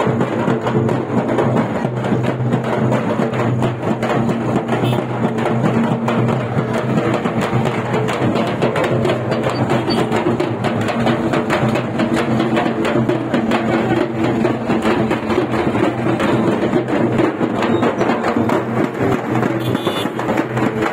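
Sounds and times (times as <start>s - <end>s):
frame drums: 0.0s - 20.9s
large drum beaten with stick: 0.0s - 20.9s.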